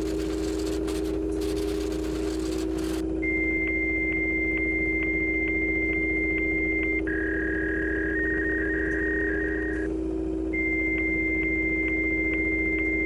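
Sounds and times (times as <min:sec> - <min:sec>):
fluttering modem tones: 0:00.0 - 0:03.0, 0:03.7 - 0:09.9.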